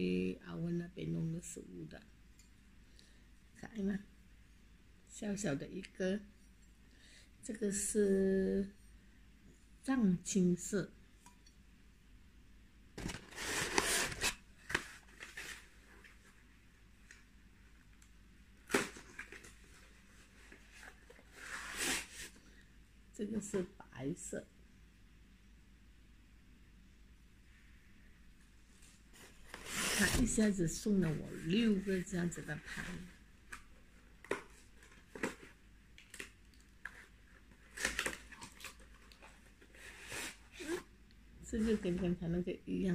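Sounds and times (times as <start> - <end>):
packaging rustling and crinkling: 13.0 - 16.4, 18.6 - 22.4, 32.6 - 40.8.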